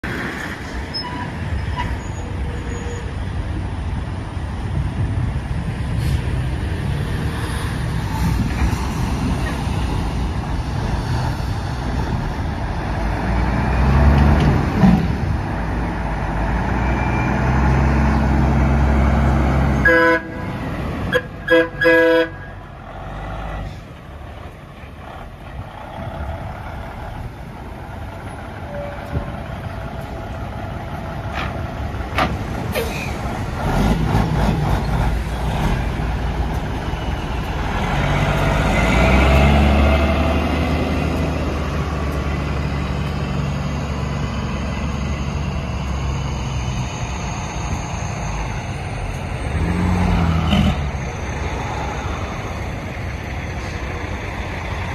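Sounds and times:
truck diesel engine running: 17.4 - 54.9
train horn blasts: 19.8 - 22.6.

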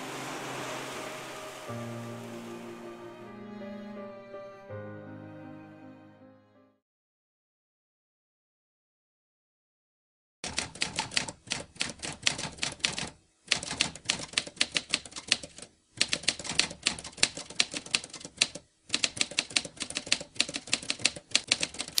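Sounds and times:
typewriter keys clacking: 10.4 - 22.0.

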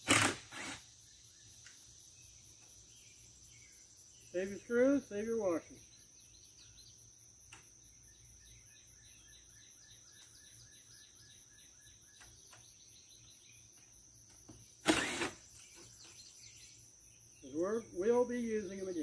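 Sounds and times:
work noise on metal roof: 0.0 - 0.8, 13.8 - 16.2
insects droning: 0.0 - 19.0
bird chirps: 1.0 - 7.1, 7.8 - 19.0.

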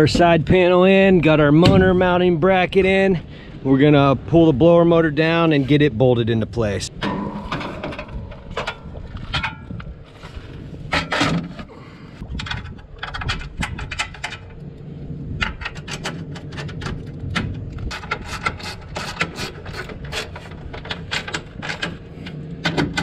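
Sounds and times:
metal clicks and scrapes: 7.0 - 11.7, 12.3 - 23.0.

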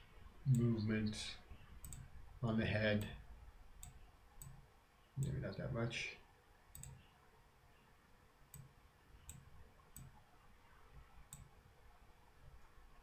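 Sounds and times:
computer mouse clicks: 1.8 - 2.1, 3.8 - 4.6, 6.7 - 7.1, 8.5 - 10.2, 11.3 - 11.5.

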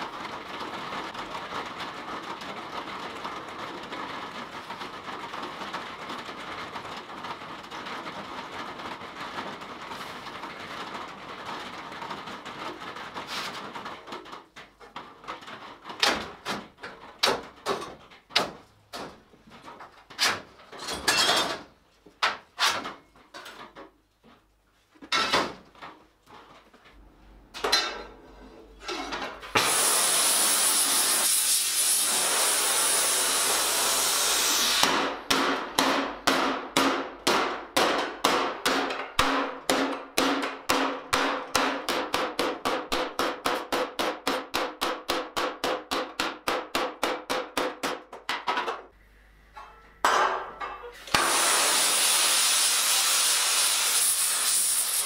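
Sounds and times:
loud steady hiss: 29.6 - 35.2, 51.0 - 55.0
hammer blows on sheet steel: 29.6 - 48.0.

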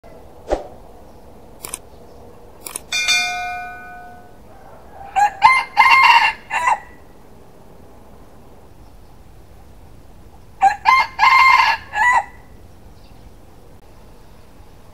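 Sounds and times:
light clicks: 1.6 - 1.8
bell-like ding: 2.9 - 4.4
rooster crowing: 3.3 - 7.1, 10.6 - 12.6.

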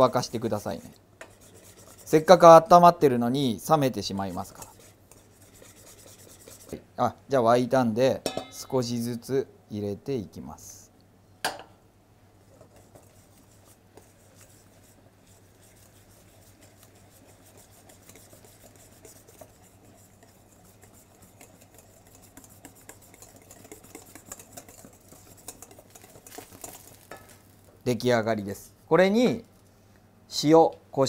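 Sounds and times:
whisk scraping metal bowl: 0.0 - 2.9, 3.6 - 6.8, 12.4 - 27.3.

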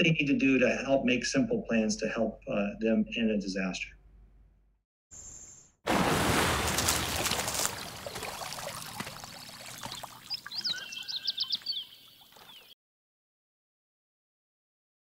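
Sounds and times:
water rushing and splashing: 5.9 - 12.6
water trickling: 5.9 - 12.7
high chirps: 9.2 - 12.7.

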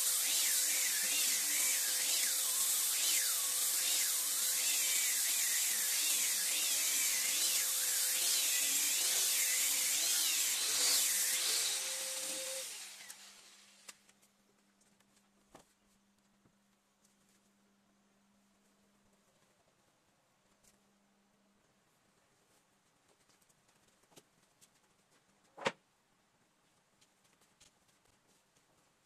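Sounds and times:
electric disc sanders whining: 0.0 - 13.9.

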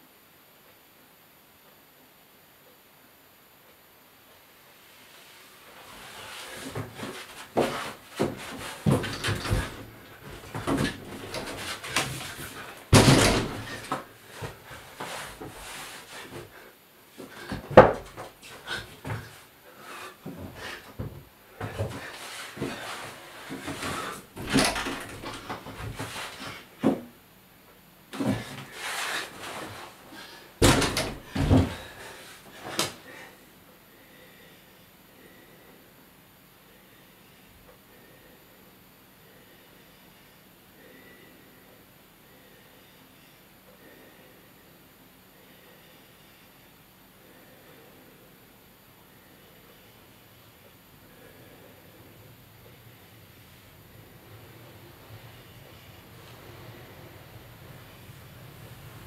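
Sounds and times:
door knocks and thumps: 6.7 - 14.0, 17.5 - 18.3, 23.5 - 27.0, 30.6 - 31.9
rustling swishes on floor: 13.7 - 16.6, 28.2 - 30.0.

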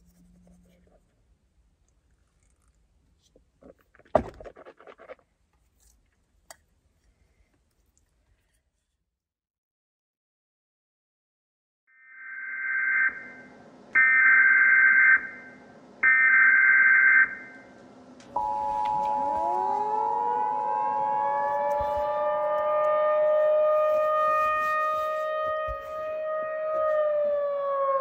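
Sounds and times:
tornado siren wailing: 12.3 - 17.7, 18.3 - 28.0
two-tone alert signal: 18.4 - 20.0
electronic tone bursts: 18.4 - 21.4.

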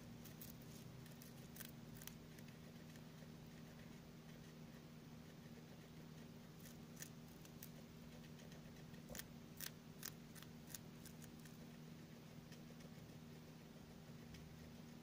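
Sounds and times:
faint steady hum: 0.0 - 15.0
guinea pig chewing: 0.0 - 15.0.

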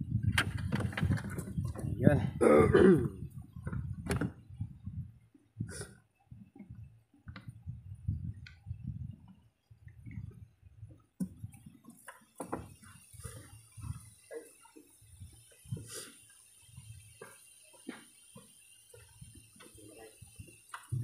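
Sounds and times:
faint clicks and knocks of parts: 6.3 - 7.7, 8.4 - 21.0.

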